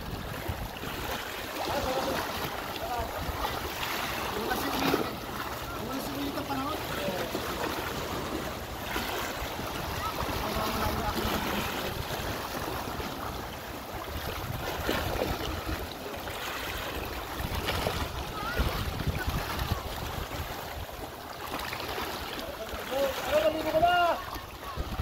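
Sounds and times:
wind rumbling on microphone: 0.0s - 1.3s, 9.3s - 15.9s, 16.9s - 21.0s, 24.2s - 25.0s
waves splashing on rocks: 0.0s - 25.0s.

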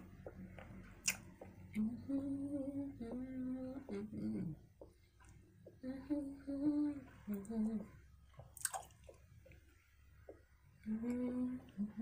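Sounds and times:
woman humming: 1.8s - 4.6s, 10.8s - 12.0s.

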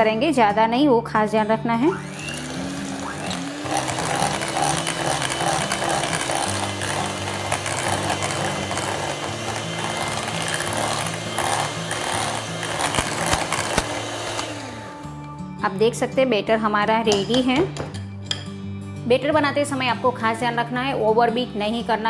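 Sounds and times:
electric hand mixer whirring: 1.9s - 15.2s.

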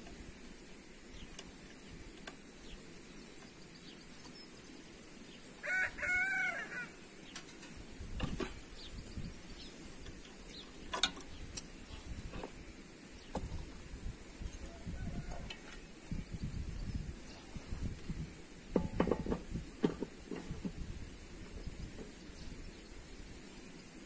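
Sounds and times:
rooster crowing: 5.6s - 7.0s, 14.6s - 15.7s.

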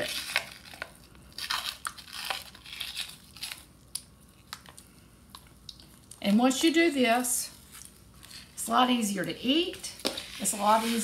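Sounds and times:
membrane crinkly rustling scrapes: 9.6s - 11.0s.

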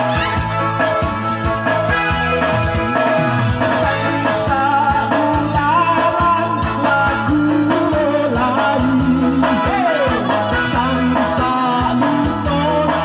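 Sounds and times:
electronic keyboard chords: 0.0s - 13.0s
steady beat: 0.0s - 13.0s
man singing through microphone: 3.7s - 13.0s.

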